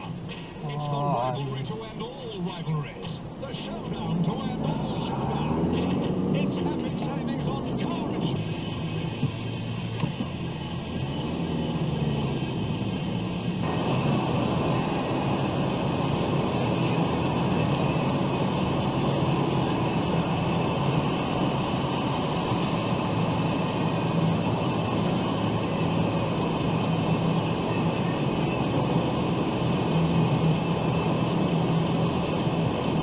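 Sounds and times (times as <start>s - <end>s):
low engine hum: 0.0s - 33.0s
tyre and road noise: 0.0s - 33.0s.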